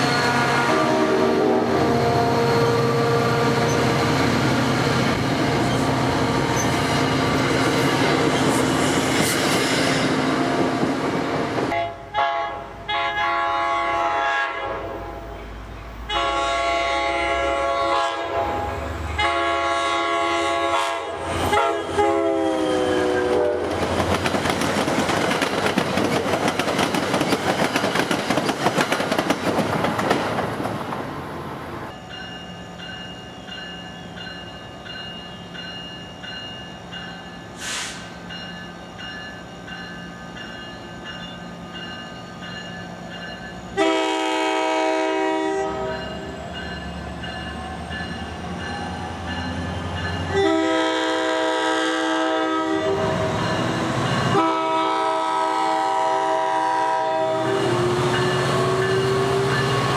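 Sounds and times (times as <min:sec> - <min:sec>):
train air horn blasts: 0:00.0 - 0:04.0, 0:11.7 - 0:15.4, 0:16.1 - 0:23.8, 0:37.6 - 0:38.2, 0:43.7 - 0:46.2, 0:50.3 - 0:53.5, 0:54.2 - 0:59.9
train coaches clickety-clack: 0:03.4 - 0:12.4, 0:20.1 - 0:31.2, 0:32.1 - 0:59.9
crossing bell ringing: 0:31.9 - 0:44.0, 0:45.6 - 0:51.2, 0:53.0 - 0:54.6, 0:57.4 - 0:59.9.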